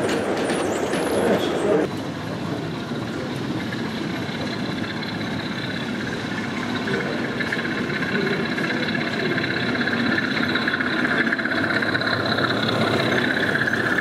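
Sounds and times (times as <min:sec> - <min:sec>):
model locomotive running whine: 0:00.0 - 0:14.0.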